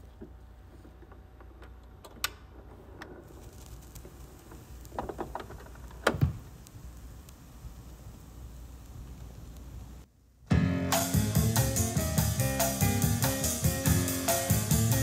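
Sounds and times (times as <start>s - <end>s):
record surface hiss: 0.0s - 15.0s
stylus clicks on vinyl record: 3.4s - 9.9s
vinyl pop with low thump: 3.6s - 8.0s, 10.5s - 15.0s.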